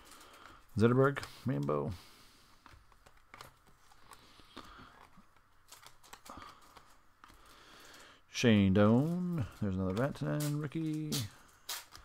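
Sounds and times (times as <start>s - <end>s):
trading cards flipped by hand: 9.9s - 12.0s.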